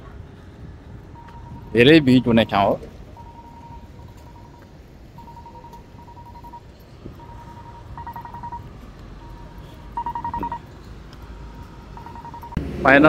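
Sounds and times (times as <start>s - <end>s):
traffic rumble: 0.0s - 13.0s
electronic beeper beeping: 1.2s - 4.6s, 5.2s - 6.6s, 7.2s - 10.6s, 11.5s - 12.6s.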